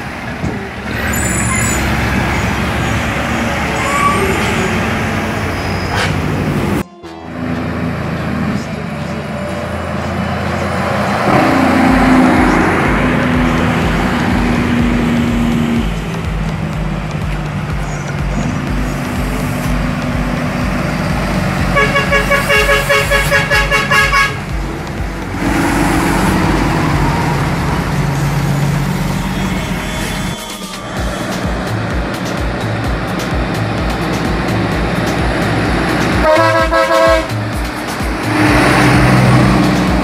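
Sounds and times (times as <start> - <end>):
diesel trucks climbing in low gear: 0.0 - 40.0
truck horn short toots: 21.7 - 24.5, 36.2 - 37.4.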